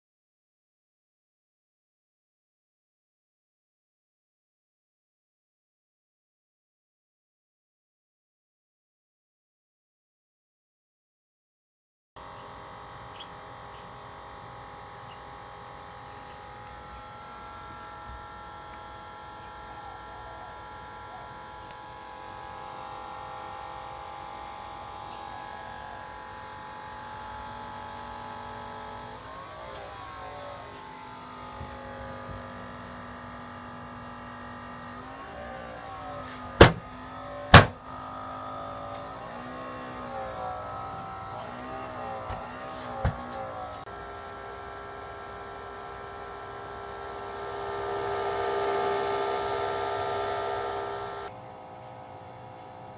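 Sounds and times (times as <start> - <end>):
cooling fans buzzing whine: 12.2 - 52.9.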